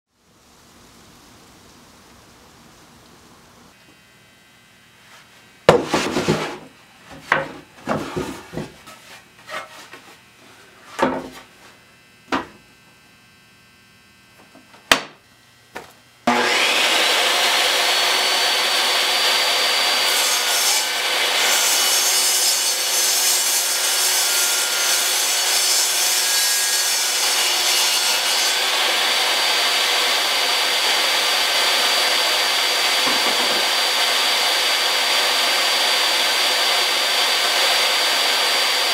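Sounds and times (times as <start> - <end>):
wooden boards knocking: 5.7 - 8.8, 12.3 - 12.6, 14.9 - 15.2, 33.0 - 33.7
saw ripping a board: 16.3 - 38.9
table saw whining: 16.3 - 38.9.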